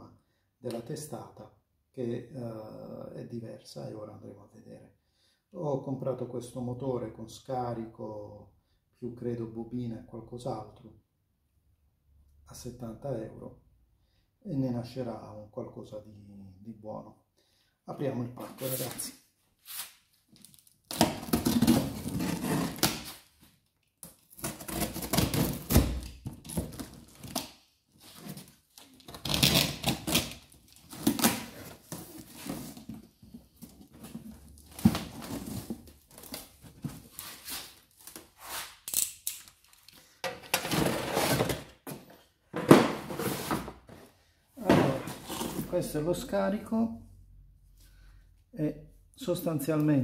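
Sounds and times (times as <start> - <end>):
packing tape slit and pulled: 28.2 - 32.3, 37.5 - 40.0
cardboard scraped and knocked: 42.6 - 43.8.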